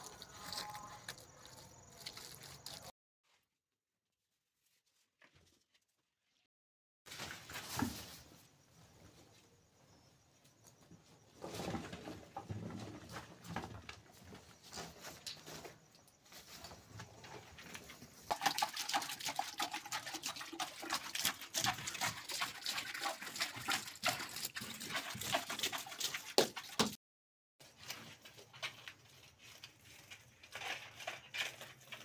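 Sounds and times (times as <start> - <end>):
hands scraping dry soil: 0.0 - 2.9, 27.7 - 32.0.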